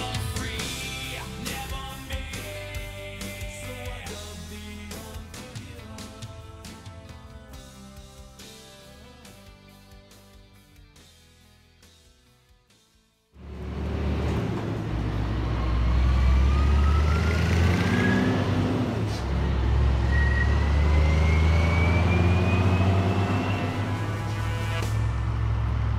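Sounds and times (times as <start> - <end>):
rising siren whine: 13.4 - 24.7
fire engine rumbling: 13.4 - 25.9.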